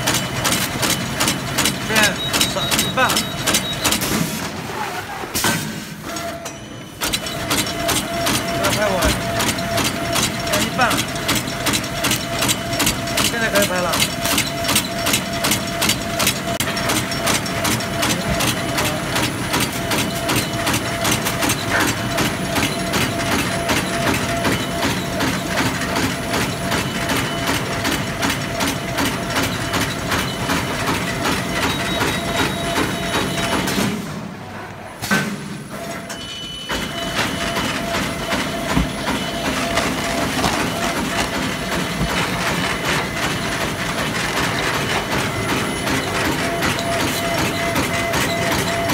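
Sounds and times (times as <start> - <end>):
rapid mechanical clatter: 0.0 - 4.8, 7.0 - 34.0, 36.7 - 48.9
steady machine hum: 35.6 - 48.9.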